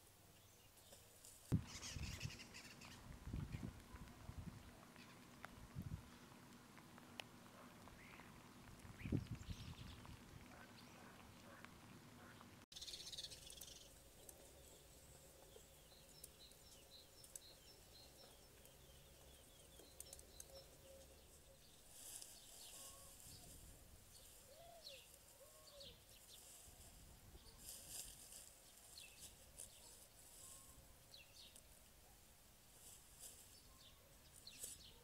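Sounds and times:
distant birds chirping: 1.6 - 26.6.

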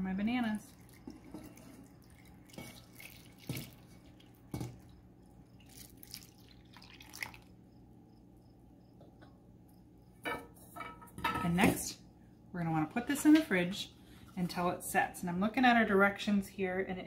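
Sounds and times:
liquid trickling and splashing: 0.6 - 7.5.

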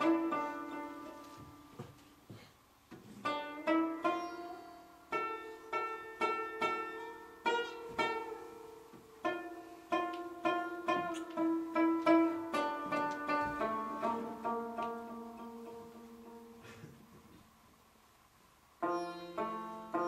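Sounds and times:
plucked string melody: 0.0 - 2.0, 3.1 - 16.6, 18.8 - 20.0.

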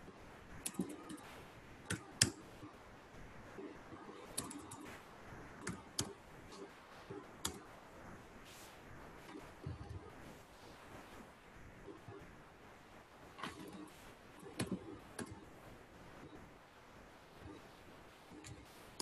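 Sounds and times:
keyboard keys clicking: 0.6 - 1.3, 1.9 - 2.5, 4.0 - 5.0, 7.4 - 7.7, 13.4 - 15.4
mouse buttons clicking: 0.6 - 2.7, 3.9 - 5.0, 5.6 - 7.7, 13.4 - 15.4.

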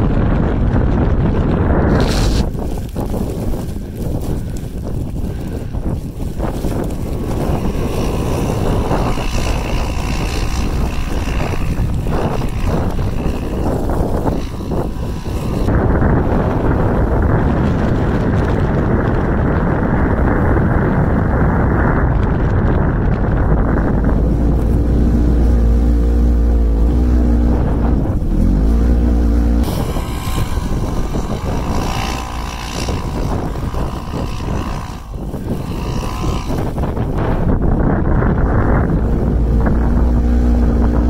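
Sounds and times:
wind on microphone: 0.0 - 41.0
off-road vehicle engine revving: 5.3 - 17.7, 23.6 - 41.0.

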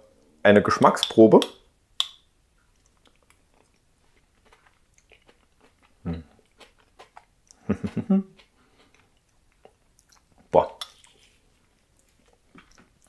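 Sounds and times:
lip smacks and mouth clicks: 1.0 - 7.6, 8.3 - 11.2, 11.8 - 13.0
person humming mm: 6.0 - 6.3.

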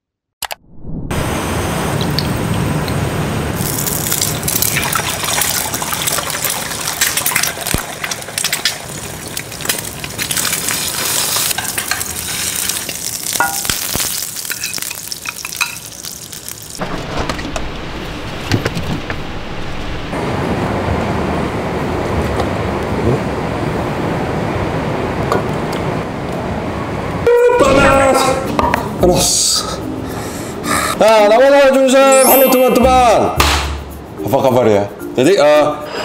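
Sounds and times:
eggs sizzling in frying pan: 3.6 - 18.4.

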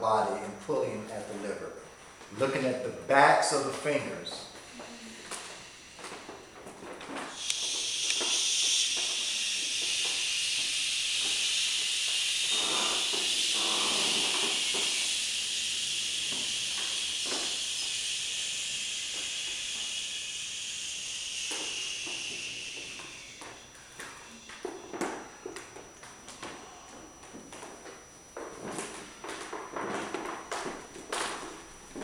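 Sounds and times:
people breathing out shhh: 7.3 - 24.8.

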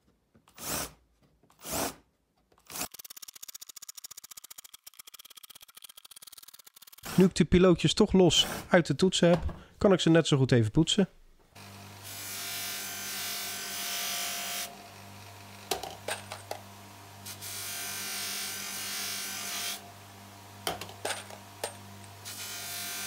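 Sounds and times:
bench grinder humming: 11.6 - 23.0.

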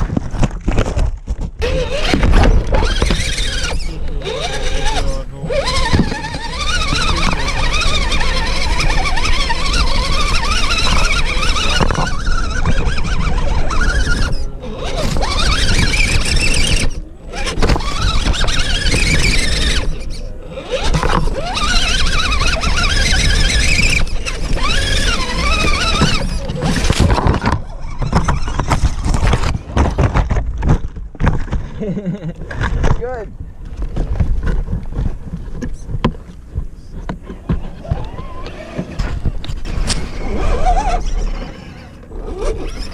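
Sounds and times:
electric motor and gears whining: 0.8 - 42.9.

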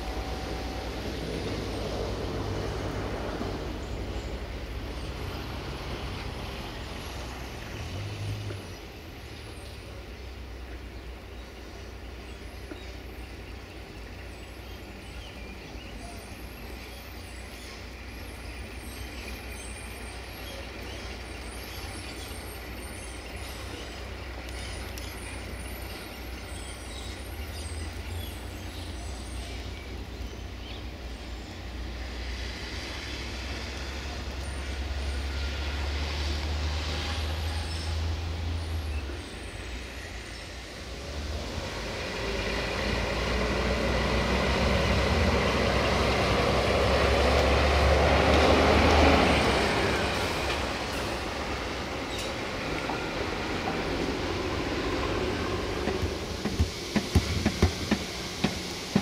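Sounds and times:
dump truck diesel engine: 0.0 - 10.8, 31.8 - 59.0.

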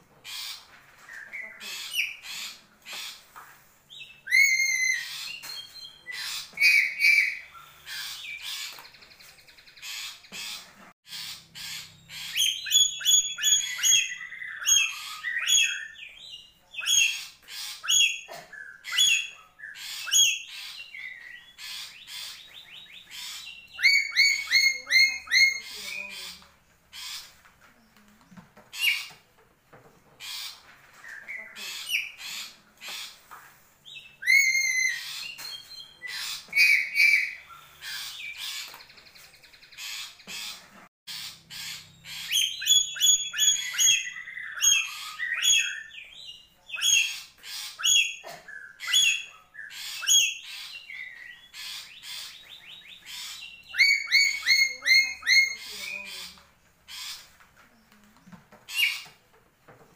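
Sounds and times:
parrot squawking and whistling: 4.3 - 5.3, 34.2 - 35.3.

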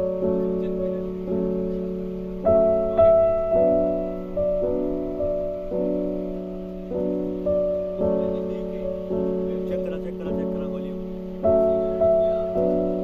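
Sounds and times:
slow piano chords: 0.0 - 13.0.

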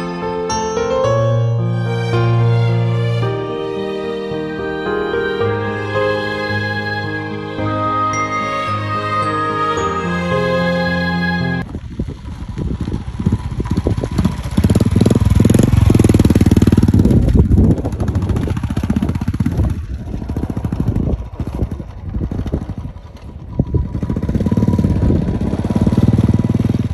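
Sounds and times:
motorcycle engine running: 11.6 - 26.9.

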